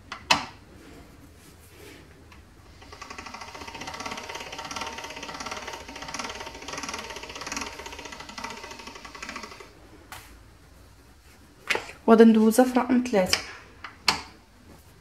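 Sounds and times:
pasta machine rollers clattering: 2.7 - 9.8.

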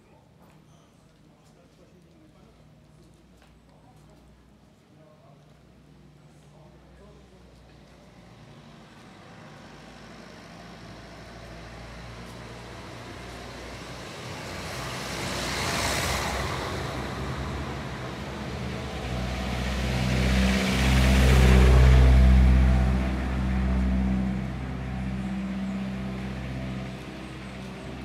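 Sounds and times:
road traffic passing: 5.9 - 28.0
heavy vehicle engine: 8.1 - 28.0.

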